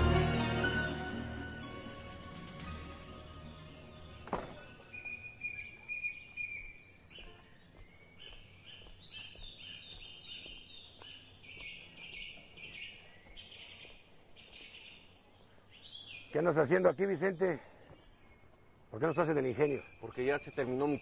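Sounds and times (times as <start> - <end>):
small birds chirping: 1.7 - 21.0
wooden gate door shutting: 4.2 - 4.9.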